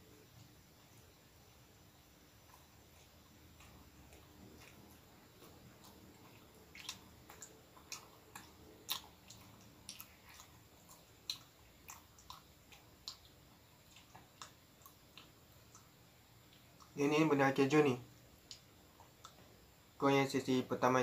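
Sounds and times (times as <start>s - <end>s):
person chewing bread: 1.4s - 17.2s, 18.1s - 19.8s.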